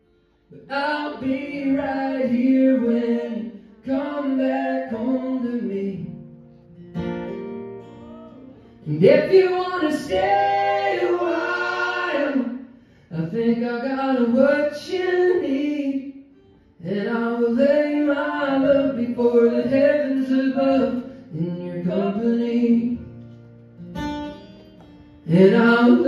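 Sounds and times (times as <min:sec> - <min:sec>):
strummed acoustic guitars: 0:00.0 - 0:26.0
men singing together: 0:09.0 - 0:12.6.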